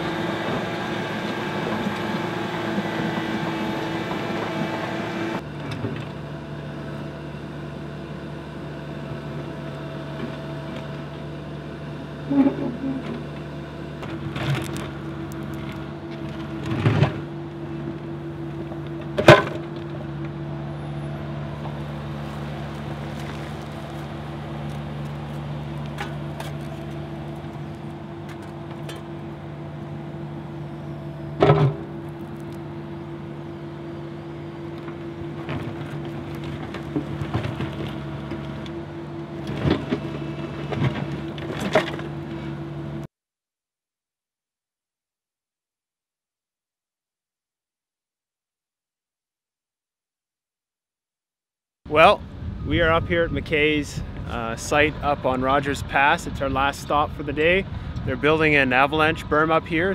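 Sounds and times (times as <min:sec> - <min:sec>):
diesel engine running: 0:00.0 - 0:43.1, 0:51.9 - 0:59.9.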